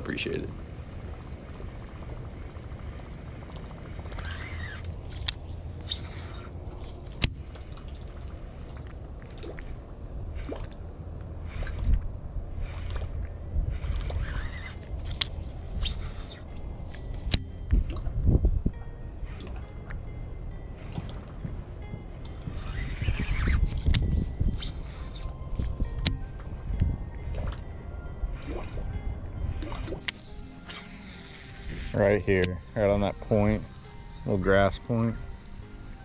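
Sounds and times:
wind rumbling on microphone: 0.0 - 30.1
fishing reel clicks: 3.4 - 7.9, 11.4 - 18.1, 19.2 - 20.0, 20.8 - 21.4, 22.2 - 26.8, 28.3 - 28.9, 29.6 - 36.0.

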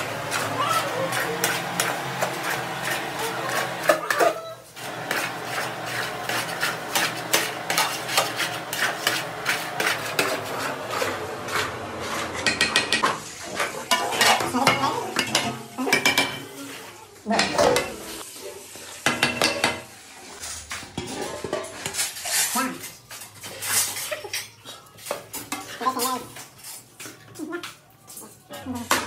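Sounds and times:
metal ladles scraping a pot: 0.0 - 27.2.

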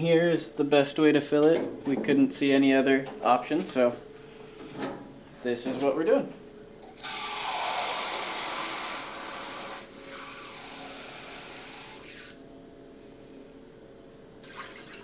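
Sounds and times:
hose water spraying into jug: 7.0 - 12.4.

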